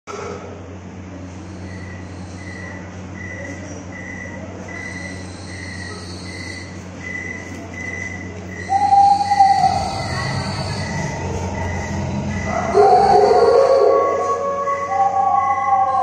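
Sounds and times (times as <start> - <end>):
steady low hum: 0.1 - 16.0
cricket chirping: 1.5 - 14.2
drawn-out howl: 8.6 - 16.0.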